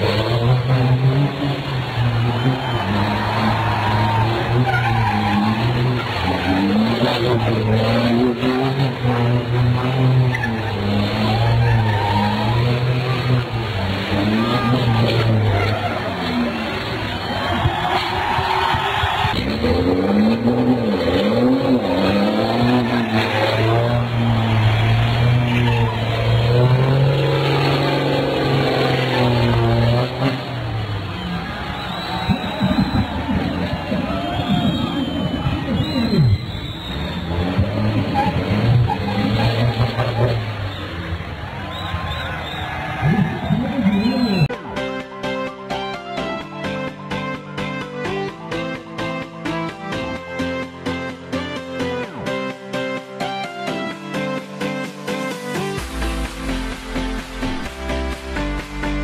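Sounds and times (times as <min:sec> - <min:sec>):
truck engine running: 0:00.0 - 0:44.4
tyres squealing: 0:02.3 - 0:08.0.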